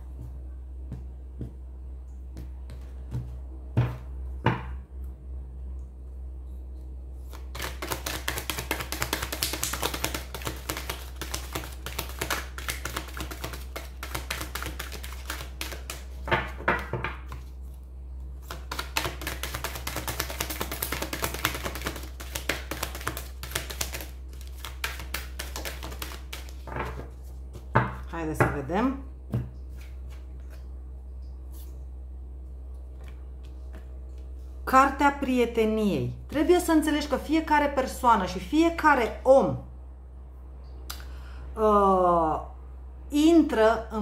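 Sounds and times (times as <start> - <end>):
cards being shuffled by hand: 7.2 - 17.8, 18.4 - 27.7, 29.3 - 30.7.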